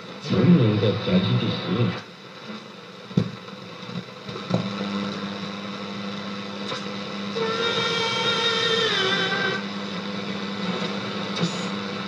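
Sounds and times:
radio hiss and static: 0:00.0 - 0:06.6.

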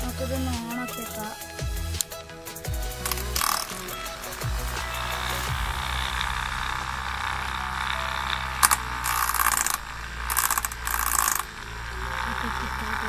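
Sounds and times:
small saw motor whining: 0:03.0 - 0:13.0.

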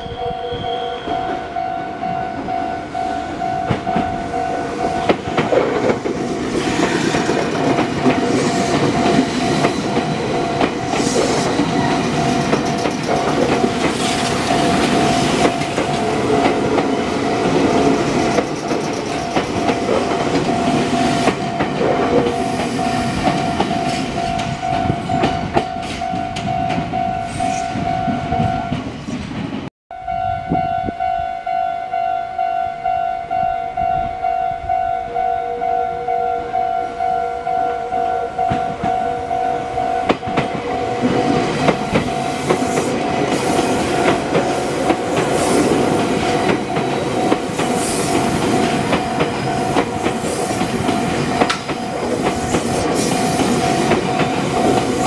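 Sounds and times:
level-crossing warning bell: 0:00.0 - 0:28.9, 0:29.9 - 0:55.0
train wheels clattering over rail joints: 0:05.0 - 0:24.6, 0:40.1 - 0:55.0.

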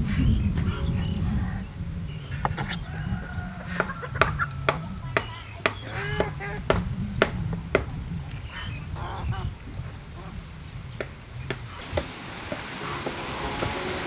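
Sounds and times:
fowl calling: 0:00.0 - 0:06.7, 0:11.8 - 0:14.0.

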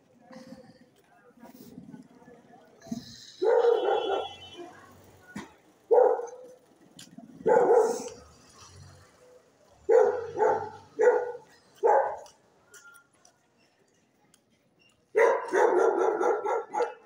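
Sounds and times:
dogs barking: 0:03.4 - 0:04.4, 0:05.9 - 0:06.6, 0:07.4 - 0:08.2, 0:09.8 - 0:12.4, 0:15.1 - 0:17.0.

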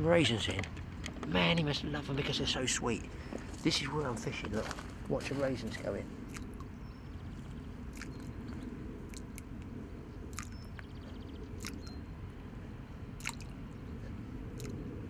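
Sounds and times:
low background rumble: 0:00.0 - 0:15.0
small plops in water: 0:13.2 - 0:13.5.

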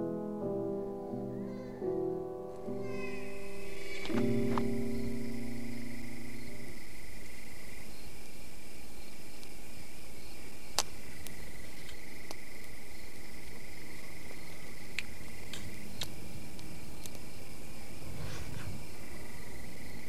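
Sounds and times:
held music chord: 0:00.0 - 0:07.8
high-pitched insect trill: 0:01.2 - 0:20.0.

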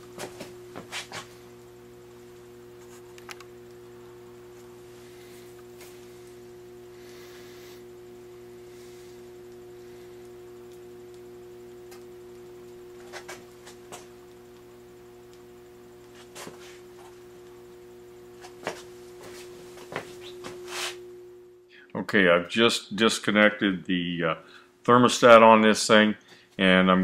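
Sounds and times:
electric furnace humming: 0:00.0 - 0:27.0.

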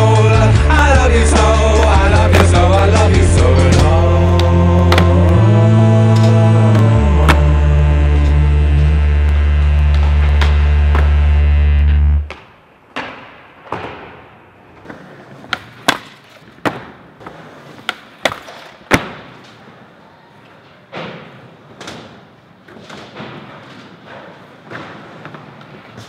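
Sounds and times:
skateboard wheels rolling: 0:01.0 - 0:05.3, 0:13.6 - 0:26.0
skateboard pops and impacts: 0:17.8 - 0:19.4.

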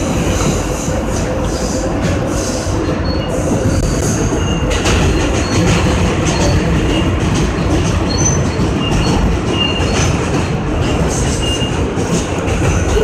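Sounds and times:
subway wheels rumbling on rail: 0:00.0 - 0:13.0
track clacks: 0:00.0 - 0:13.0
high wheel squeals: 0:02.4 - 0:07.1, 0:08.0 - 0:10.2.

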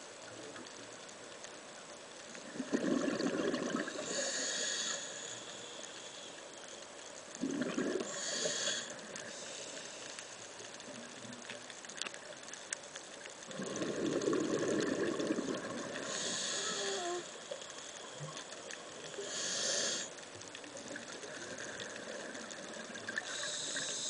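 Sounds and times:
steady underwater hiss: 0:00.0 - 0:24.0
scuba diver breathing underwater: 0:02.6 - 0:06.5, 0:07.4 - 0:10.4, 0:13.5 - 0:20.2, 0:21.4 - 0:24.0.

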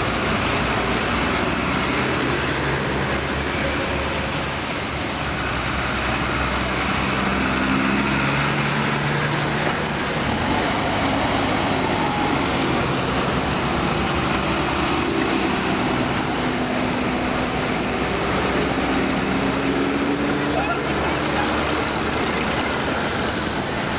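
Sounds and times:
diesel tractors driving past: 0:00.0 - 0:23.9.

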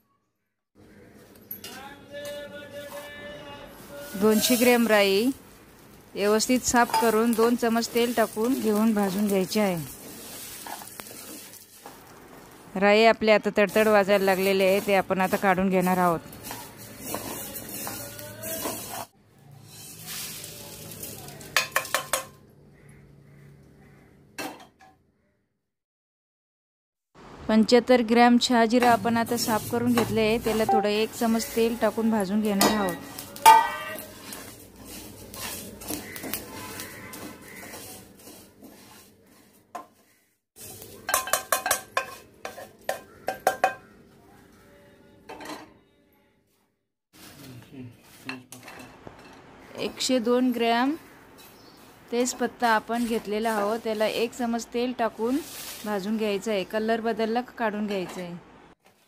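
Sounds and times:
seeds crackling and sizzling in a wok: 0:00.9 - 0:22.9, 0:28.4 - 0:44.0, 0:47.1 - 0:58.2
pan clinking: 0:06.6 - 0:09.2, 0:21.4 - 0:22.4, 0:30.0 - 0:31.6, 0:32.6 - 0:38.0, 0:41.0 - 0:43.9.

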